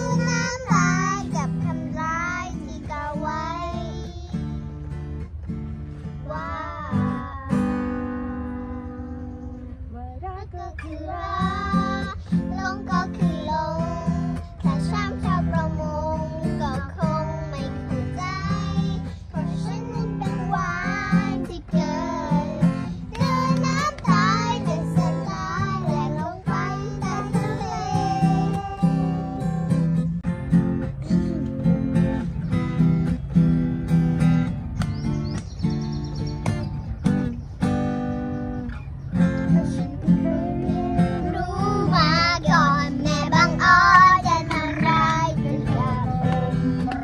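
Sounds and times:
children singing a pop song: 0.0s - 5.0s, 6.1s - 9.2s, 10.2s - 30.1s, 39.2s - 47.0s
strummed acoustic guitar: 0.0s - 47.0s.

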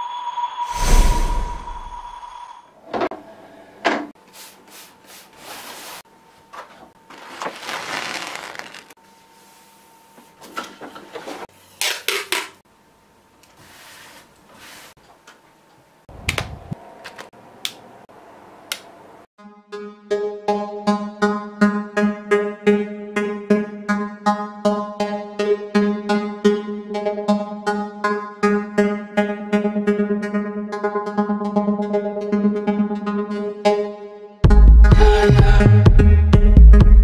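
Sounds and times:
paper pad sliding on board: 4.4s - 6.0s, 13.6s - 15.0s.

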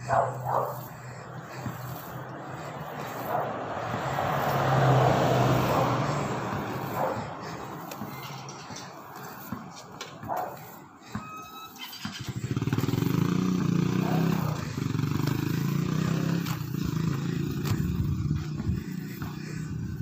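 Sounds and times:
motorcycle engine passing: 0.0s - 10.8s, 11.8s - 20.0s.

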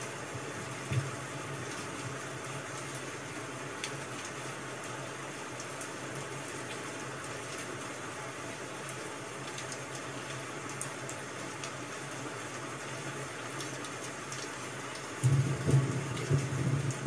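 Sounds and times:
steady rain hiss: 0.0s - 17.0s.

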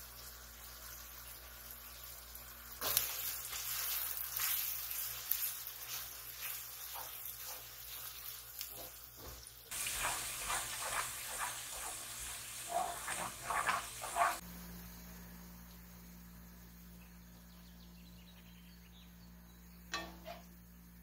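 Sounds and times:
food sizzling in a pot: 0.0s - 17.3s
utensil knocks and scrapes: 8.7s - 14.4s
clattering strokes: 9.7s - 14.4s.

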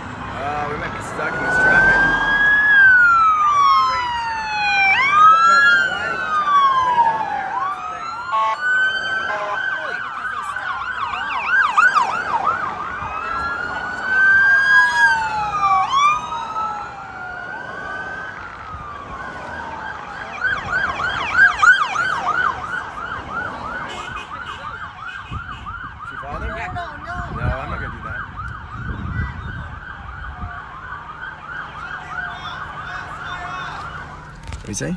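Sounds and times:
police sirens wailing: 0.0s - 34.9s
police sirens yelping: 0.0s - 34.9s.

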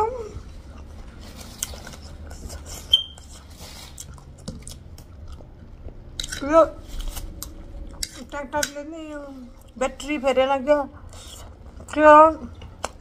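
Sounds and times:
chewing and mouth sounds: 0.5s - 8.7s, 11.0s - 13.0s
brief high squeak: 2.9s - 3.2s.

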